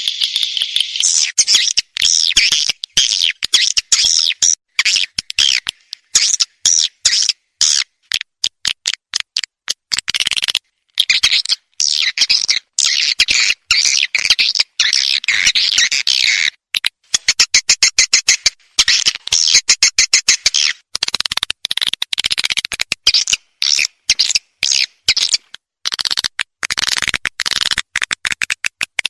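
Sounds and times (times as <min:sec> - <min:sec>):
sharp dry clicks: 0:07.7 - 0:12.6, 0:16.7 - 0:29.0.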